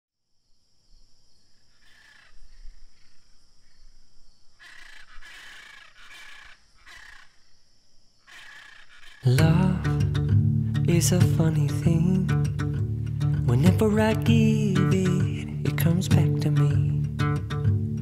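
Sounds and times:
bird calls: 1.4 - 9.6.

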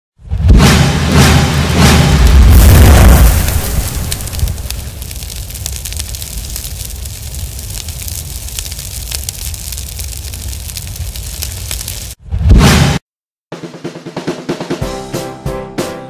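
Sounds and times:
low rumble: 0.3 - 12.6
loud hit: 0.4 - 5.6
fire crackling: 1.2 - 12.2.

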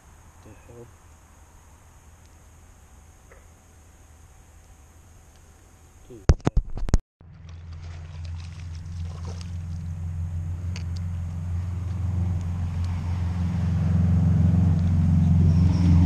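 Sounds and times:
low engine hum: 7.2 - 16.0.

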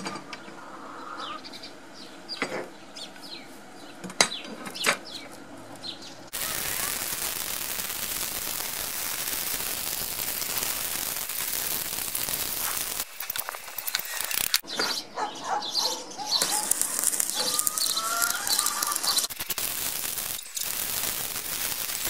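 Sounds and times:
birds chirping: 0.4 - 21.0
small clicks: 6.3 - 14.6, 16.4 - 22.0
welding arc crackling hiss: 6.3 - 14.6, 16.3 - 22.0.

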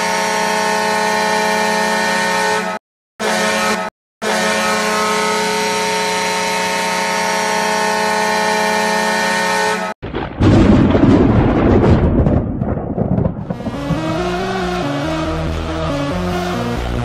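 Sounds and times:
goal horn blast: 0.0 - 10.0
loud rumbling crash: 10.0 - 15.9.

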